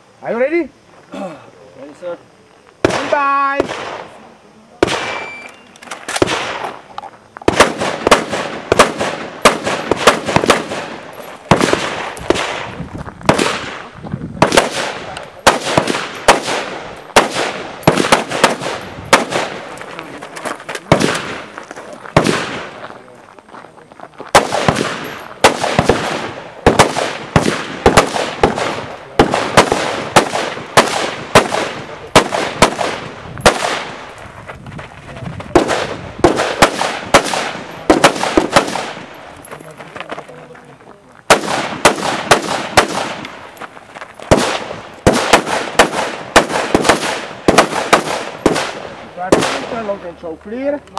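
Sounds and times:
rifle shots with echo: 2.8 - 4.2, 4.8 - 5.3, 6.1 - 6.8, 7.5 - 19.8, 20.9 - 22.8, 24.3 - 34.1, 35.5 - 39.2, 41.3 - 43.5, 44.3 - 50.1.

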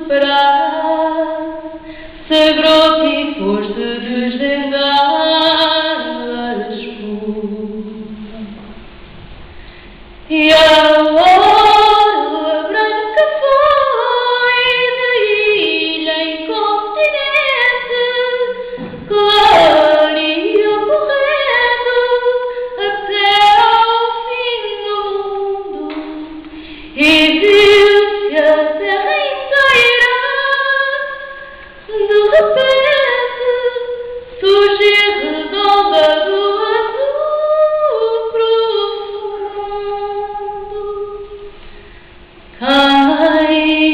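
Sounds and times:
woman singing a cappella: 0.0 - 8.7, 10.2 - 41.5, 42.6 - 43.9.

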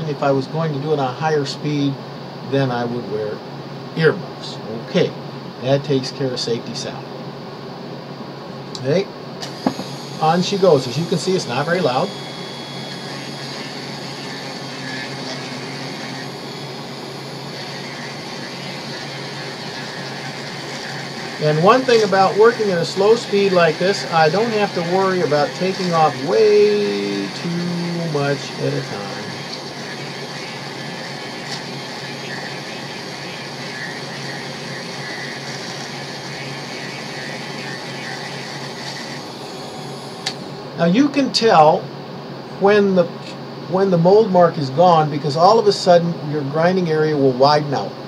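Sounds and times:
rotary grinder sanding rubber: 9.5 - 40.3.

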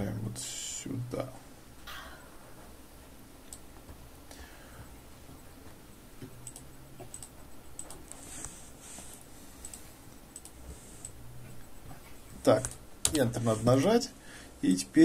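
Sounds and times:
faint low hum: 0.0 - 15.0
computer mouse clicks: 3.4 - 3.7, 6.2 - 8.6, 9.6 - 11.2, 12.5 - 13.2.

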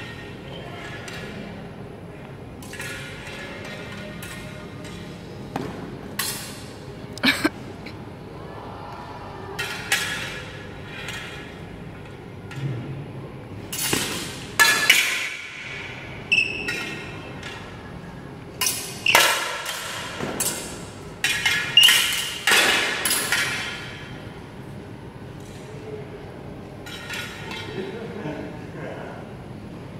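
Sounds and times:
swords clashing with metallic clanks: 2.6 - 5.0, 13.7 - 15.8, 18.6 - 24.1.

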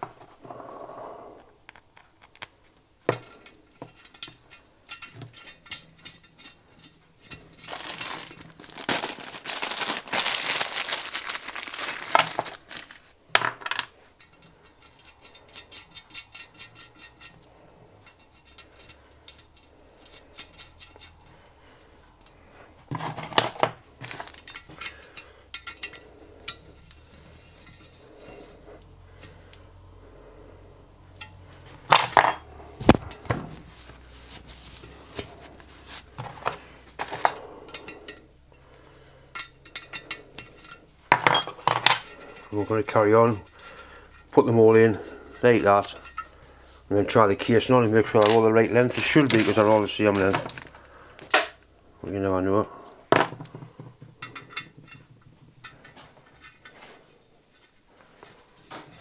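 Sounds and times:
metal parts clinking on iron: 2.5 - 9.4, 13.3 - 21.3, 22.0 - 28.6, 31.1 - 33.3, 36.1 - 38.6, 39.3 - 46.4, 47.8 - 51.6, 53.1 - 56.8.

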